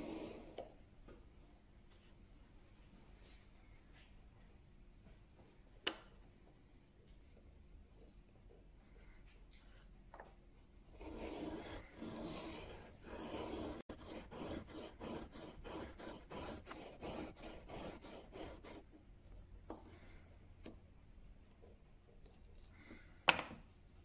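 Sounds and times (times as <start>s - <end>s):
chisel rasping on sharpening plate: 11.0s - 18.8s.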